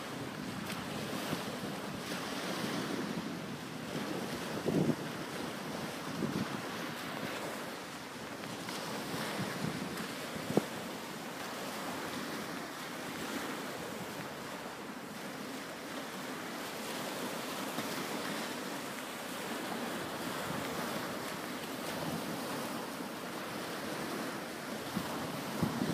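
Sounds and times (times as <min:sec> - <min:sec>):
wind on microphone: 0:00.0 - 0:07.7, 0:08.3 - 0:14.5, 0:19.4 - 0:25.9
waves washing on shingle: 0:00.0 - 0:25.9.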